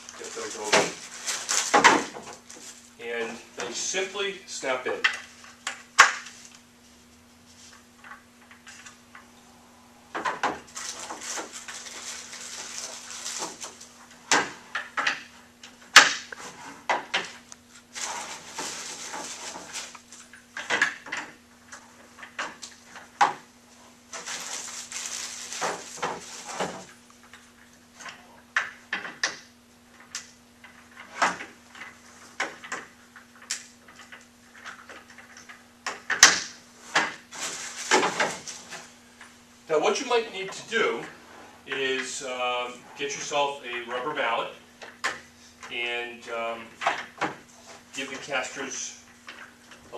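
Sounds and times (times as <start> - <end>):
rustling: 0.0 - 3.9, 10.6 - 14.7, 17.6 - 20.4, 21.8 - 27.9, 36.7 - 39.4.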